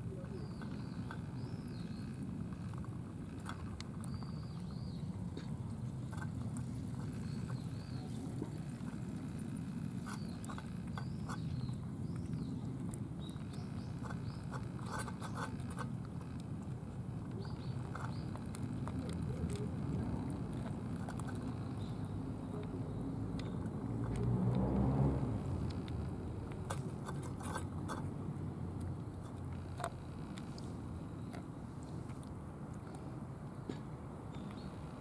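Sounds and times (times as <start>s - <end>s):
cats chewing and licking: 0.0s - 34.8s
bird chirping: 0.1s - 5.5s, 6.1s - 16.4s, 17.3s - 19.6s.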